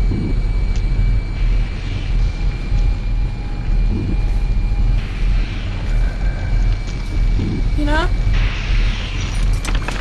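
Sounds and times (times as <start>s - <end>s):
pulsing low drone: 0.0s - 10.0s.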